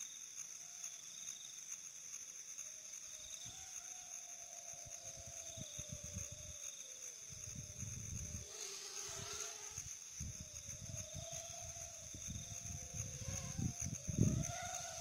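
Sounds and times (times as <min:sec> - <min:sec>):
insects trilling: 0:00.0 - 0:15.0
faint wavering hum: 0:02.2 - 0:15.0.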